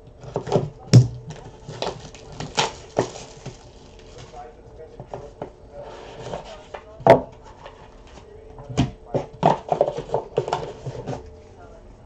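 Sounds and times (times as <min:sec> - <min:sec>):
handling card box packaging: 0:00.0 - 0:11.4
packaging rustles: 0:00.2 - 0:05.4.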